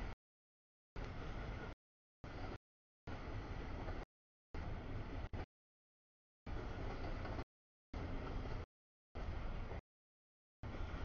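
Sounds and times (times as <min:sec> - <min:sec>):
train wheels on rail: 0:01.0 - 0:05.5, 0:06.5 - 0:09.8, 0:10.6 - 0:11.0.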